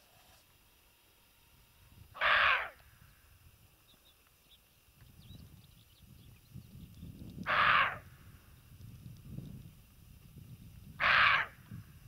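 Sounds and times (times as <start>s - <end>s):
distant bird chirps: 2.2s - 8.8s
wind rumble on microphone: 4.9s - 12.0s.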